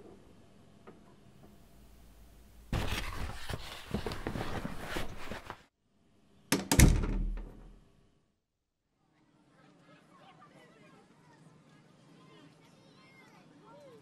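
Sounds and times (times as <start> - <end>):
cardboard boxes rustling and scraping: 2.7 - 5.7
wooden door swinging shut: 6.5 - 7.8.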